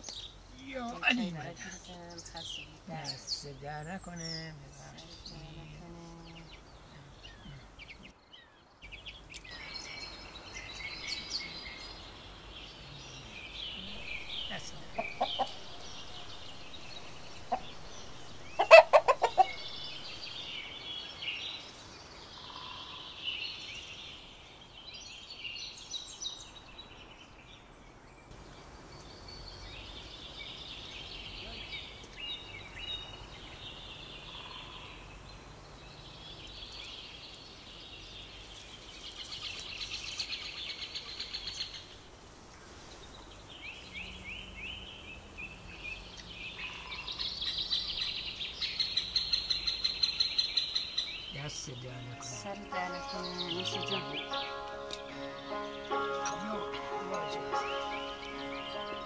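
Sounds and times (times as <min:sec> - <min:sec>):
small birds chirping: 0:00.0 - 0:59.0
chickens clucking: 0:13.8 - 0:20.4.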